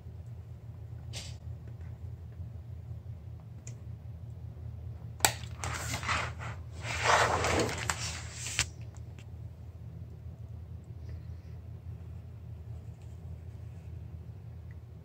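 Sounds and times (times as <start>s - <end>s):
steady low hum: 0.0s - 15.0s
knife scraping vinyl strip: 5.5s - 8.7s.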